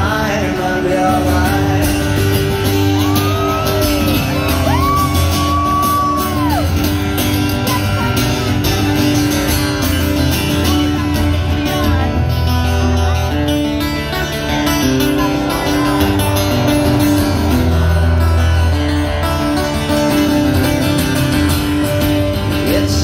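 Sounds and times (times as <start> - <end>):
live band through pa: 0.0 - 23.0
person cheering: 3.0 - 6.8.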